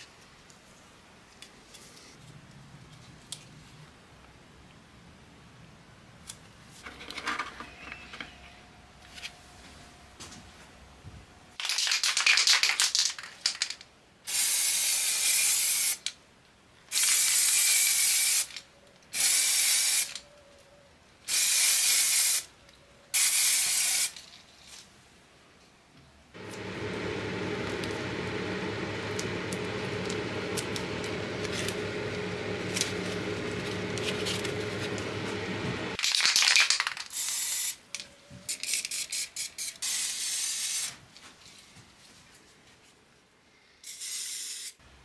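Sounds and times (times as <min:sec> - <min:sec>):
spray can rattling: 0:11.6 - 0:16.1, 0:16.9 - 0:18.6, 0:19.2 - 0:20.2, 0:21.3 - 0:22.4, 0:23.2 - 0:24.4, 0:36.0 - 0:37.6
spray paint hissing: 0:14.3 - 0:16.1, 0:16.9 - 0:18.6, 0:19.2 - 0:20.2, 0:21.3 - 0:22.5, 0:23.2 - 0:24.2, 0:38.7 - 0:40.9, 0:43.8 - 0:44.8.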